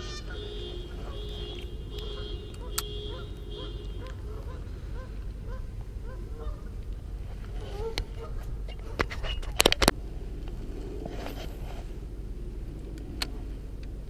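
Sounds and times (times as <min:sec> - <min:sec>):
waterfowl honking: 0:00.0 - 0:06.7.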